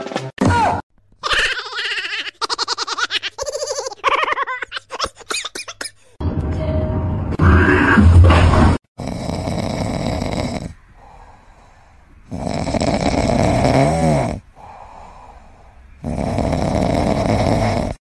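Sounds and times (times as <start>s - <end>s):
kitten snoring: 9.0s - 11.2s, 12.3s - 14.4s, 16.0s - 18.0s.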